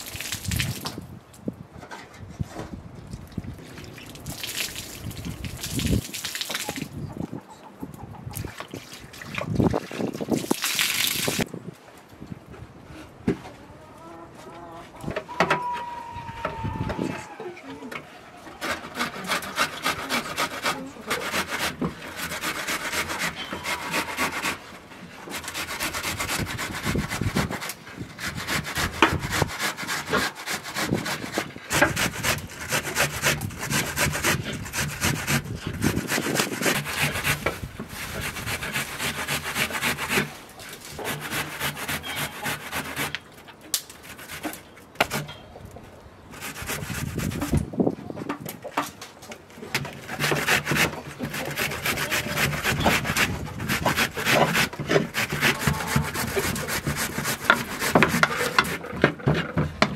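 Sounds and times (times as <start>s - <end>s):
onion rasping on metal grater: 18.6s - 24.6s, 25.4s - 40.3s, 40.9s - 43.1s, 50.0s - 58.8s.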